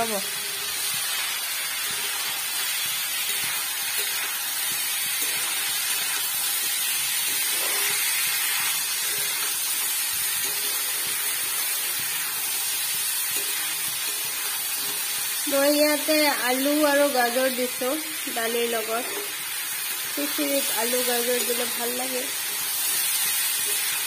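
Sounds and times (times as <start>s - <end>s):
vegetables sizzling in oil: 0.0s - 24.0s
metal spatula stirring: 1.8s - 15.4s.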